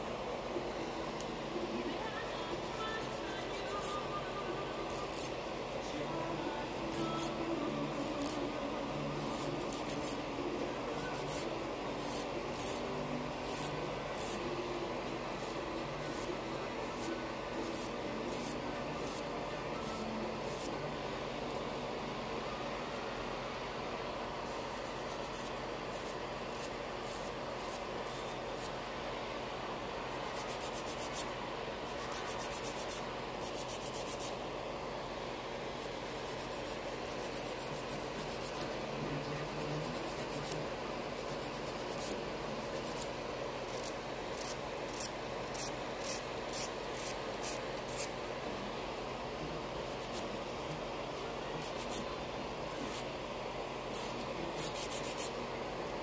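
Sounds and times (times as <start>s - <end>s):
fan whirring: 0.0s - 56.0s
nail file rasping: 4.9s - 5.4s, 9.2s - 10.2s, 24.5s - 28.8s, 30.1s - 31.3s, 31.9s - 34.4s, 35.8s - 38.8s, 39.4s - 48.2s, 49.8s - 50.8s, 51.6s - 52.1s, 53.9s - 55.4s.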